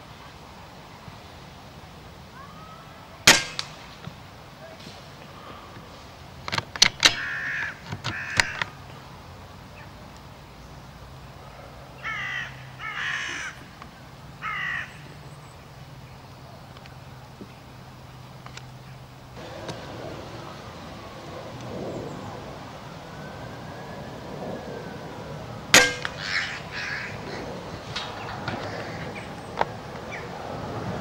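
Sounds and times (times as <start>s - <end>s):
air rifle shot: 3.2s - 4.0s, 25.7s - 26.4s
crows cawing: 7.0s - 8.8s, 11.9s - 13.8s, 14.4s - 15.2s, 25.7s - 30.2s.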